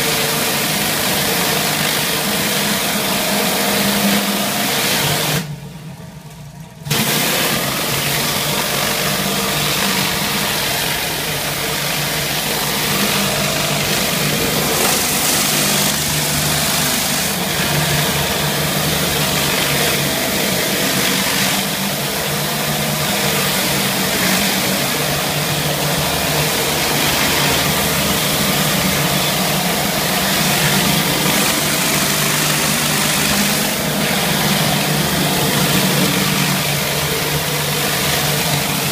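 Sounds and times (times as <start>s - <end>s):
pressure washer engine hum: 0.0s - 38.9s.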